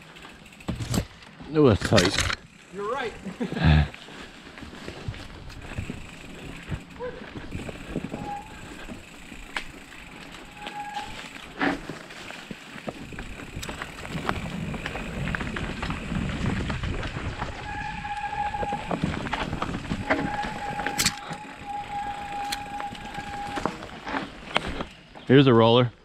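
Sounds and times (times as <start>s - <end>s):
bike tyres rumbling on rocks: 0.0s - 2.7s, 3.4s - 25.3s
bike clicking and rattling: 0.0s - 25.3s
thin steady whine: 17.8s - 23.9s.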